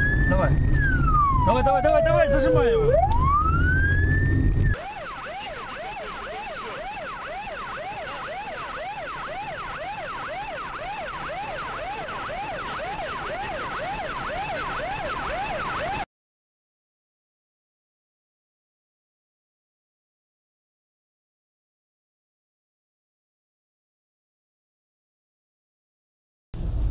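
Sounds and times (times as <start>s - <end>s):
vehicle noise: 0.0s - 16.0s, 26.6s - 26.9s
police siren wailing and yelping: 0.0s - 16.1s.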